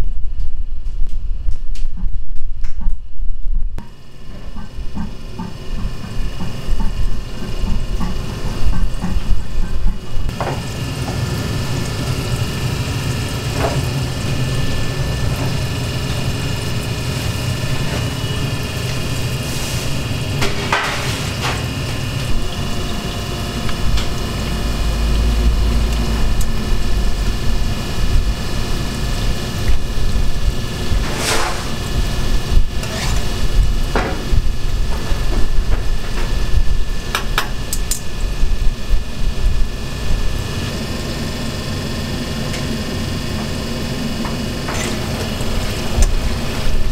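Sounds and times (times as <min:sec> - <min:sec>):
hot oil bubbling and sizzling: 0:03.9 - 0:46.9
low rumble: 0:21.8 - 0:37.1.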